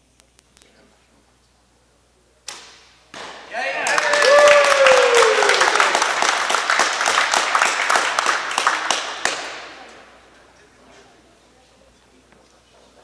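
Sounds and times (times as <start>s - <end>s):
small group applauding: 3.2s - 10.6s.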